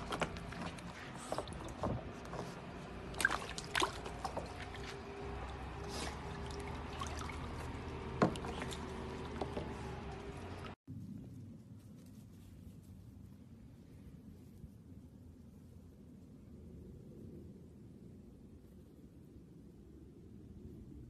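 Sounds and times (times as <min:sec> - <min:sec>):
water splashing in a plastic tub: 0:00.0 - 0:10.8.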